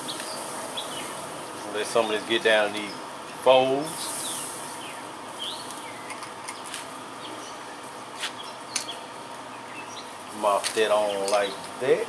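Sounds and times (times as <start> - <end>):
outdoor background hiss: 0.0 - 12.0
small birds chirping: 0.0 - 12.0.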